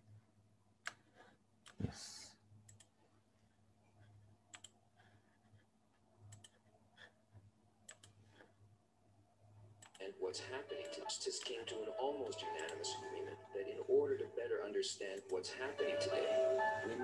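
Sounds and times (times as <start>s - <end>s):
computer clicks: 2.6s - 3.0s, 4.5s - 4.8s, 6.3s - 6.6s, 7.9s - 8.2s, 12.6s - 12.8s.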